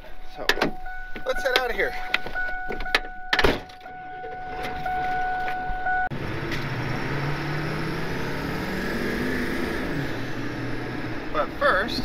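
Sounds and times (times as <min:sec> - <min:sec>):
steady electronic tone: 0:00.0 - 0:08.8
road noise inside cab: 0:00.0 - 0:12.0
truck engine hum: 0:00.0 - 0:12.0
loud thump: 0:02.7 - 0:03.9.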